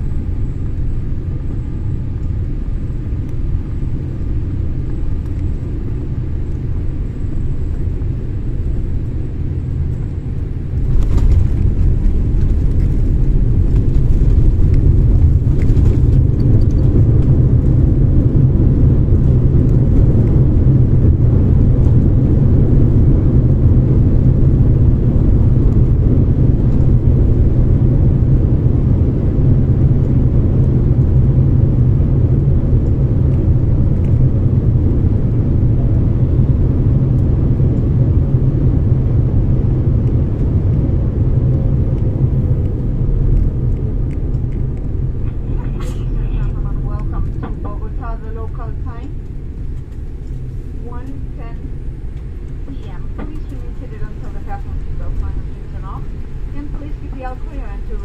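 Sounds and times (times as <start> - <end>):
loud low rumble in cabin: 0.0 - 58.0
airliner landing jolt: 10.6 - 28.7, 44.6 - 58.0.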